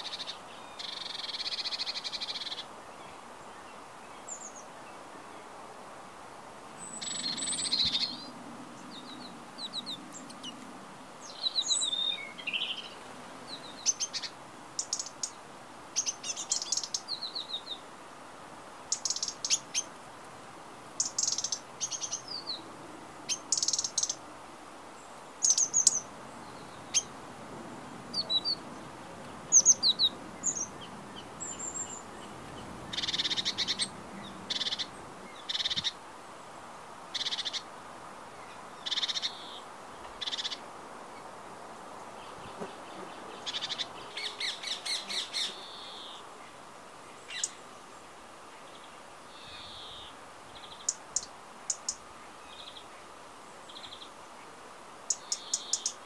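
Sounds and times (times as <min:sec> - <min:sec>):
songbird chirping and trilling: 0:00.0 - 0:05.5, 0:06.7 - 0:17.9, 0:18.9 - 0:20.0, 0:20.9 - 0:24.3, 0:24.9 - 0:27.2, 0:27.9 - 0:36.0, 0:37.1 - 0:37.7, 0:38.4 - 0:41.3, 0:42.1 - 0:56.0.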